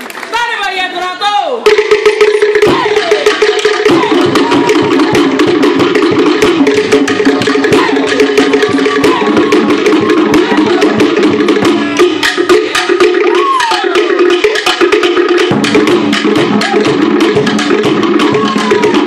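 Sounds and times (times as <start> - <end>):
fast drum ensemble: 0.4 - 19.0.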